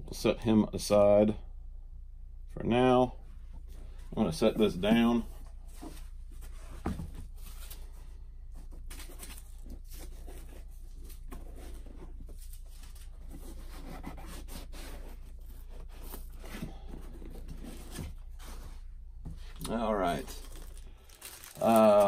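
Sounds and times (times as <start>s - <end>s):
foam scraping cardboard box: 13.2s - 18.8s.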